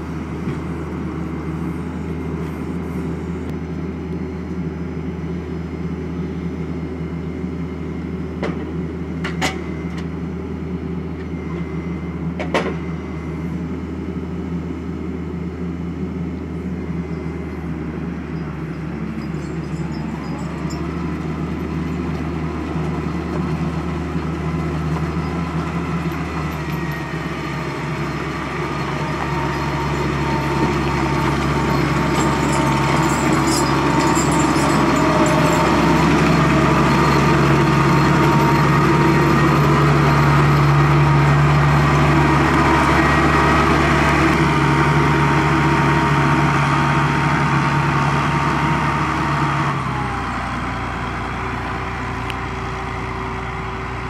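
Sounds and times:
tractor diesel engine passing: 0.0 - 4.3, 13.1 - 54.0.

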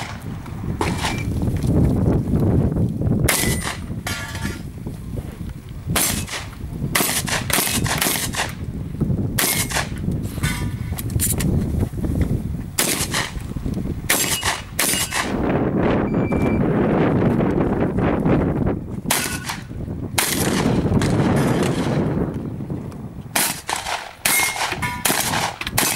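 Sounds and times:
shotgun shots: 0.8 - 1.3, 3.3 - 4.6, 6.0 - 8.6, 9.4 - 10.0, 12.8 - 13.4, 14.1 - 15.4, 19.1 - 22.1, 23.4 - 25.9
shot timer beep: 16.1 - 16.6
metallic ring from steel targets: 24.3 - 25.1.

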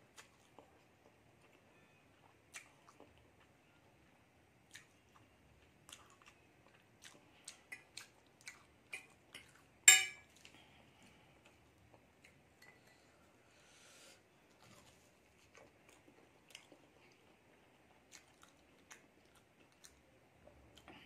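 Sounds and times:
soft chewing: 0.0 - 21.0.

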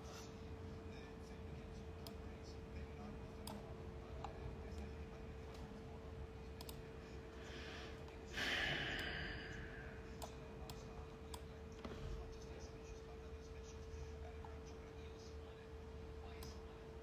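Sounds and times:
faint steady hum: 0.0 - 17.0
breathy sigh: 7.4 - 10.0.

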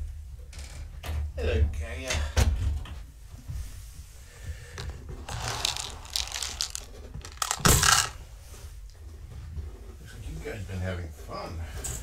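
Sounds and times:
rustling and crinkling: 3.4 - 9.6.

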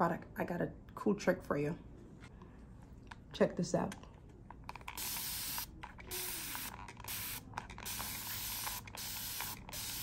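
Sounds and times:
spray bottle hissing: 5.0 - 10.0.

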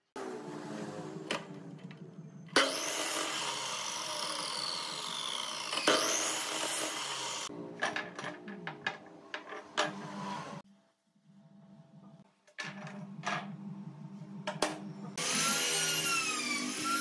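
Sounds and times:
miter saw motor running: 2.6 - 7.5, 15.2 - 17.0
saw blade cutting wood: 2.6 - 7.5, 15.2 - 17.0.

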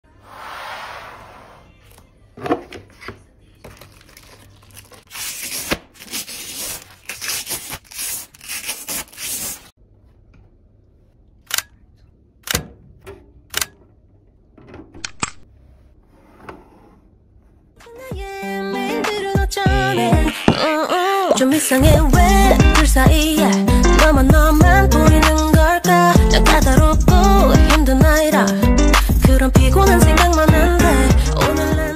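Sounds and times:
plastic film peeling crinkling: 3.7 - 9.7.

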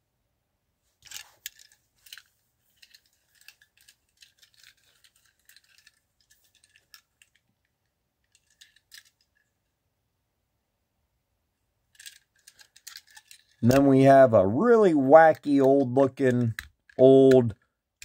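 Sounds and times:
small hard objects clicking: 1.0 - 7.5, 12.0 - 14.2.

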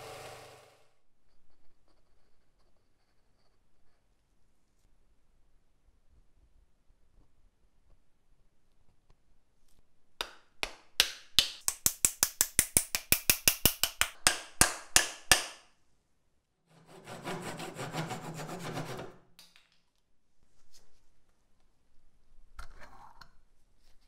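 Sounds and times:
saw cutting wood: 0.0 - 0.8, 16.7 - 19.2
wooden wedge being hammered: 10.2 - 15.7.

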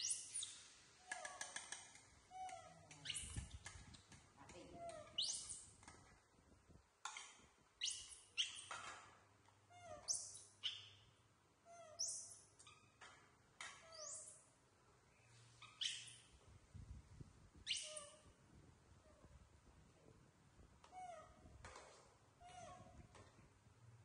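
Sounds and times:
baby monkeys squeaking: 0.0 - 3.7, 4.7 - 5.8, 7.2 - 8.8, 9.7 - 11.0, 11.7 - 13.0, 13.8 - 14.5, 15.6 - 16.4, 17.6 - 18.3.

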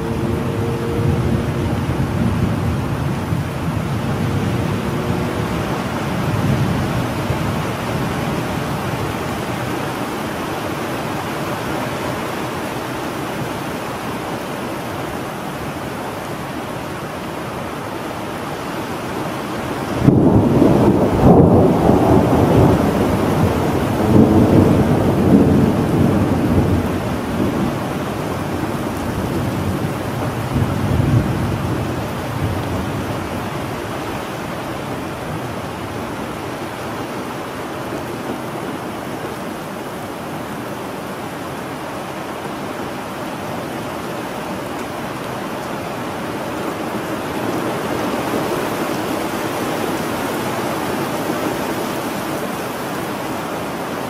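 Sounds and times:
low thunder rumbling: 0.0 - 9.8, 19.9 - 36.2
steady rain: 0.0 - 54.0
loud thunder clap: 20.0 - 26.9.

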